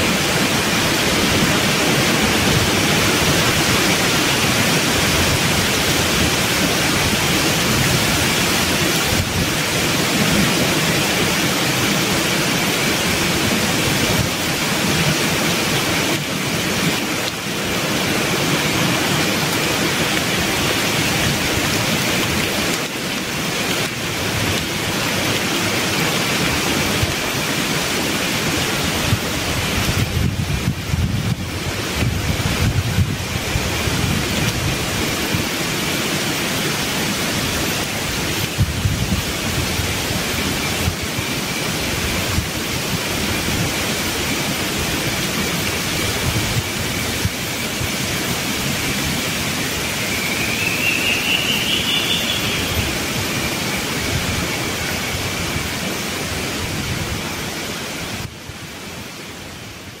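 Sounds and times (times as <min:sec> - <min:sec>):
wind through leaves: 0:00.0 - 1:00.0
low rumbling gusts: 0:27.9 - 0:35.8, 0:37.4 - 0:50.6.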